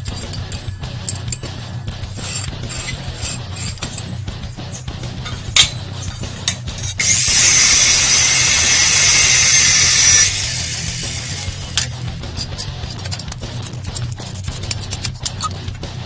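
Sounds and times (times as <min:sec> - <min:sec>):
chop saw cutting steel: 0:02.0 - 0:04.0, 0:07.0 - 0:12.5
metal clicks: 0:11.7 - 0:15.7.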